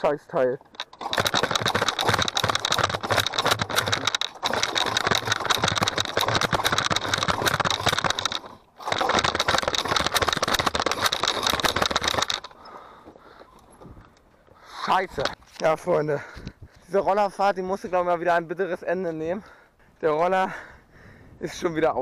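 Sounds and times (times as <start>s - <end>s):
scooter engine cranking: 0.6s - 13.6s.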